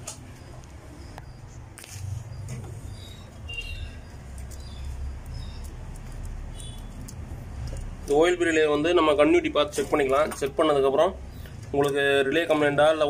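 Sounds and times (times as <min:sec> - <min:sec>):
faint high chirps: 0:02.4 - 0:05.7.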